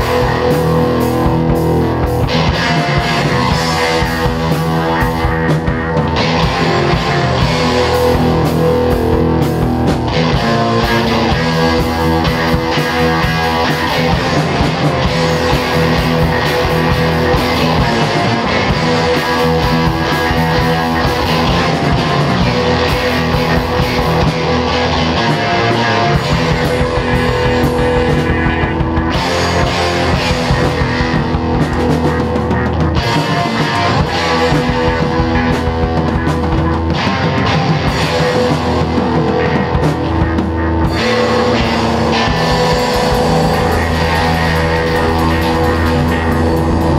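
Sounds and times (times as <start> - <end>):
distorted electric guitars: 0.0 - 46.9
driving drum kit: 0.0 - 46.9.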